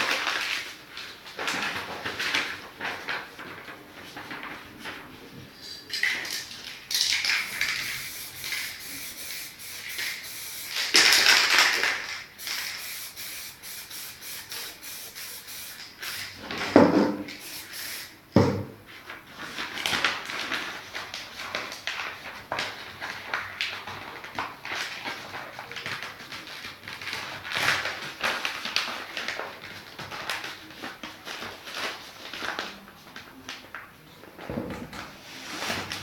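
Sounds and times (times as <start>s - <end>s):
spray paint can hissing: 6.9s - 16.4s, 17.3s - 18.2s.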